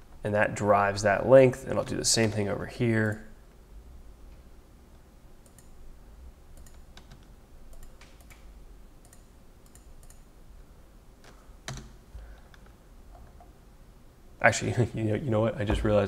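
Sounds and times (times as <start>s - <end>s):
mouse clicks: 5.4s - 5.8s, 6.6s - 10.3s.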